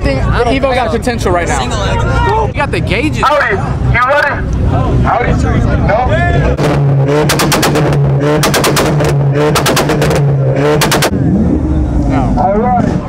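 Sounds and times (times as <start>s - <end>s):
engine on launch limiter: 6.5s - 12.4s
loud exhaust pops and bangs: 6.6s - 11.2s.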